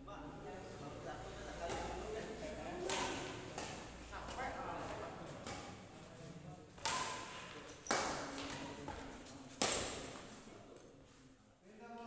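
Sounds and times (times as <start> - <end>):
badminton racket hitting shuttlecock: 1.6 - 5.9, 6.8 - 10.4.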